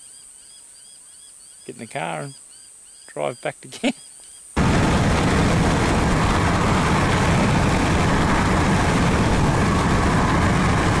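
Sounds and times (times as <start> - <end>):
road noise: 4.6 - 11.0
wind buffeting microphone: 4.6 - 11.0.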